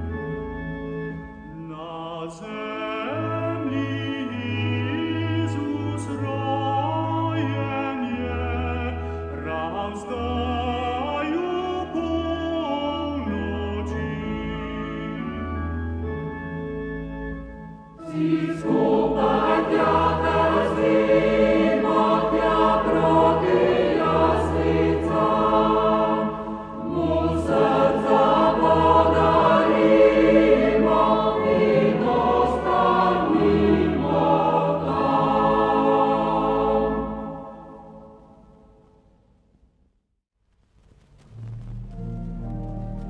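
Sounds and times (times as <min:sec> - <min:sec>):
choir singing: 0:18.0 - 0:38.2.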